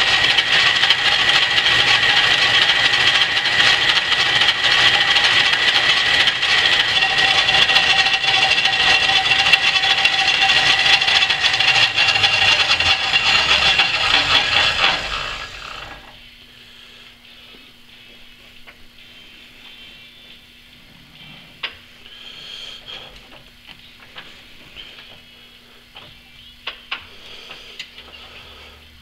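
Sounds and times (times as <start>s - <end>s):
cutting noise: 0.0s - 16.2s
metal lathe running: 0.0s - 16.3s
high gear whine: 0.0s - 17.6s.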